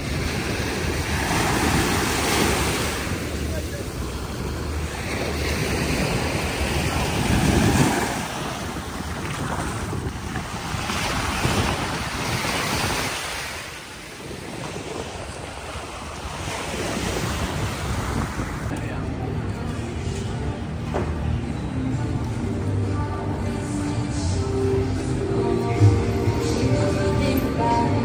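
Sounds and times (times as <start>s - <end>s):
sea waves washing onto beach: 0.0s - 18.8s
wind buffeting microphone: 0.0s - 18.8s.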